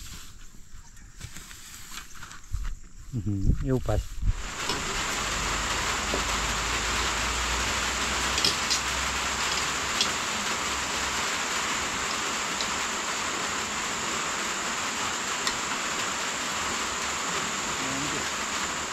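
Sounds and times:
steady rain: 0:04.2 - 0:18.9.

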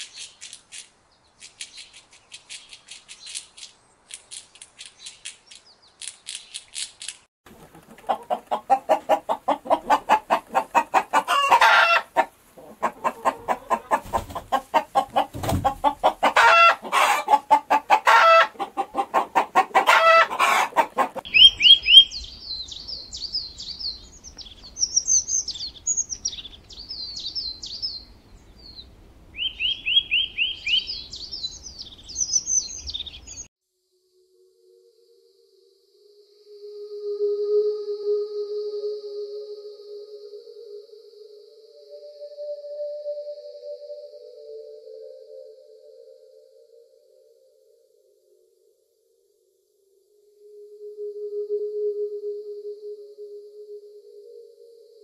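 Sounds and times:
small birds chirping: 0:00.0 - 0:18.8, 0:19.4 - 0:33.5
chickens clucking and squawking: 0:07.5 - 0:21.8.

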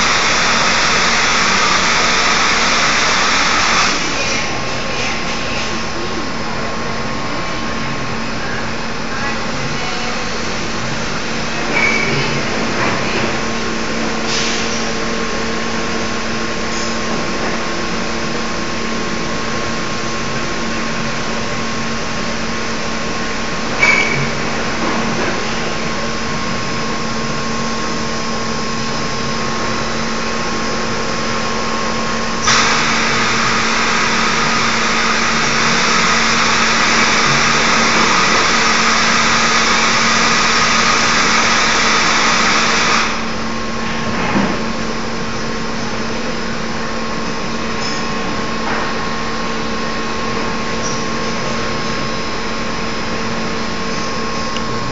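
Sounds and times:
loud hiss: 0:00.0 - 0:04.4, 0:31.2 - 0:43.6
machine motors humming: 0:00.0 - 0:54.9.

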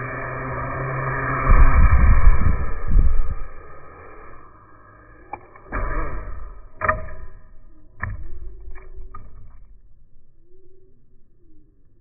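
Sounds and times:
drone motors whirring: 0:00.0 - 0:08.0
light clatters of tumbling drone: 0:00.0 - 0:10.4.

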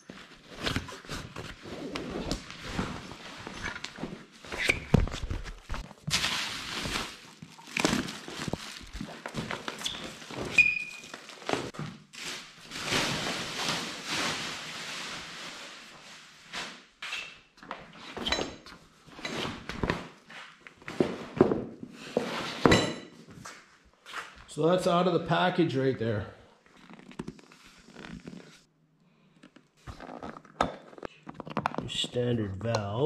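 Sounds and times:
bubble wrap and fabric rustling: 0:00.0 - 0:17.0.

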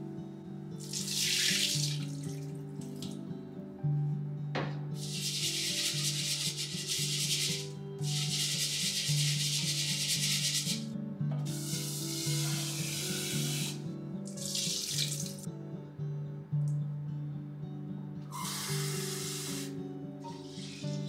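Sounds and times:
soft background music: 0:00.0 - 0:21.0
water pouring: 0:00.8 - 0:03.2, 0:14.3 - 0:15.5.

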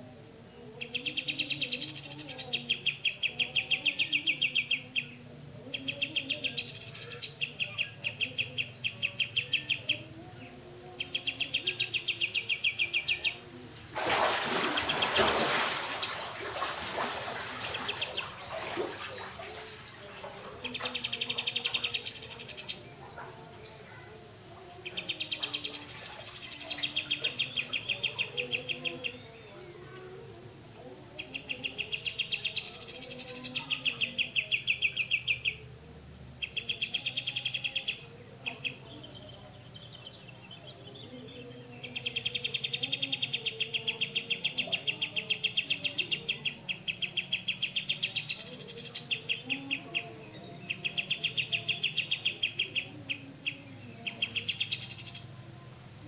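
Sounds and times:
bird chattering song: 0:00.8 - 0:10.1, 0:10.9 - 0:13.5, 0:20.6 - 0:22.9, 0:24.8 - 0:29.4, 0:31.2 - 0:35.8, 0:36.4 - 0:55.4.

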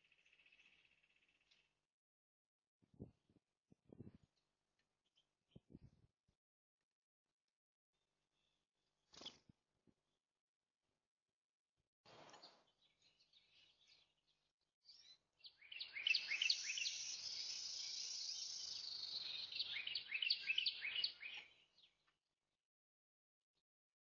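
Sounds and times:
songbirds chirping: 0:00.0 - 0:01.9, 0:12.1 - 0:22.2.

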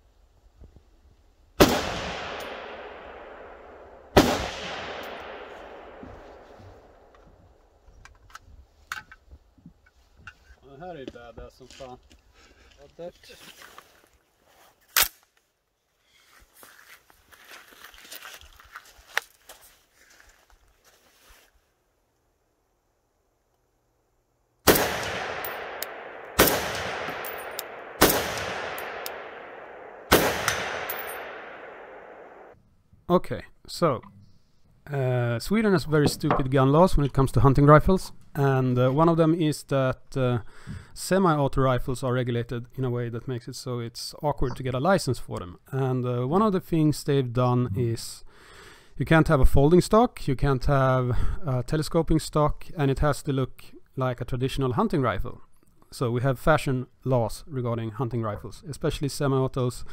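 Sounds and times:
rifle shots echoing: 0:01.6 - 0:07.1, 0:24.6 - 0:32.6.

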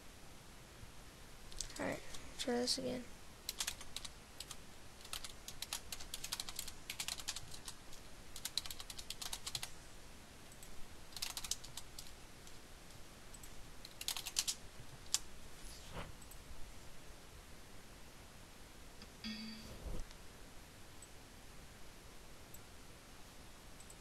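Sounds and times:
keyboard typing: 0:03.5 - 0:07.8, 0:08.4 - 0:09.7, 0:10.5 - 0:12.2, 0:13.3 - 0:15.2.

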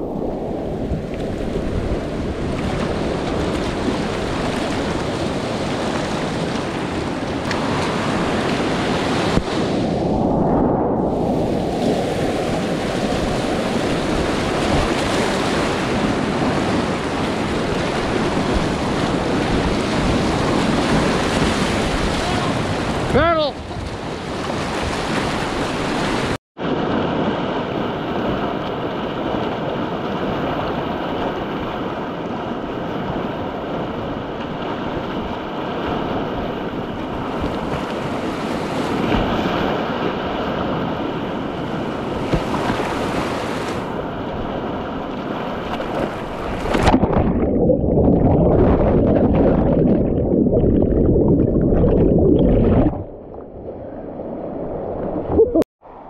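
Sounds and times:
muffled underwater bubbling: 0:46.7 - 0:53.6, 0:55.2 - 0:55.7.

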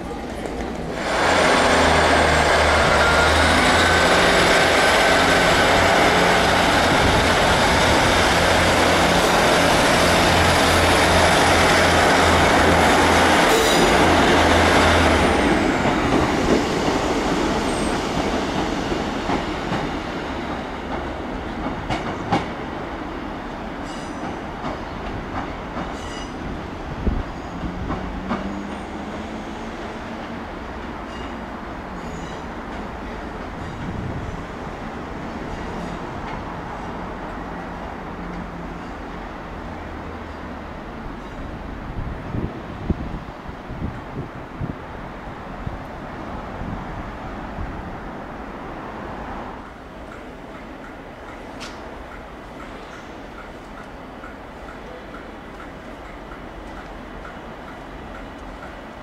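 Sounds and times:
train diesel engines: 0:00.0 - 0:59.0
train wheel clicks: 0:49.6 - 0:59.0.

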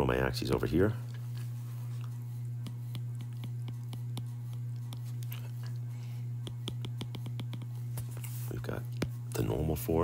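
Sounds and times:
low electrical hum: 0:00.0 - 0:10.0
stylus tapping on glass screen: 0:06.4 - 0:07.8.

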